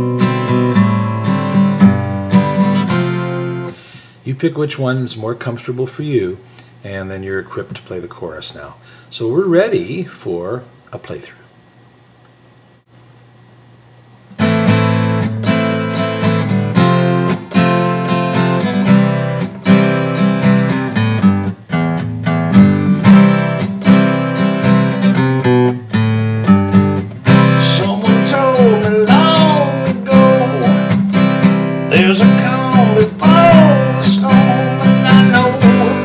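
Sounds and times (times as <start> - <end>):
acoustic guitar strumming: 0.0 - 3.8, 14.3 - 36.0.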